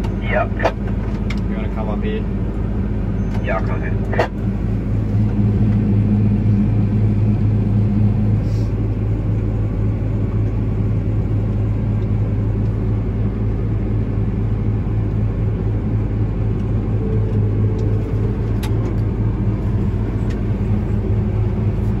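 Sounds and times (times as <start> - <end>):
combine harvester low hum: 0.0 - 22.0.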